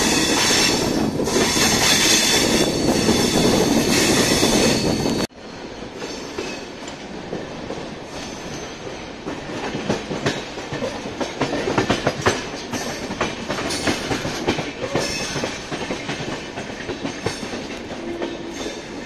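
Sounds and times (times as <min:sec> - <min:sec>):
train rumble: 0:00.0 - 0:19.0
train wheels clattering over rail joints: 0:05.9 - 0:19.0.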